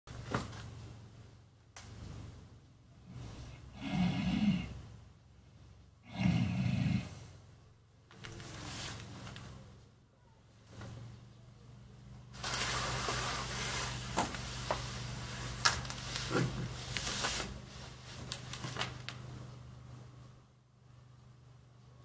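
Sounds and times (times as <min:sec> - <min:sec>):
man snoring: 0:03.6 - 0:04.8, 0:06.0 - 0:07.3.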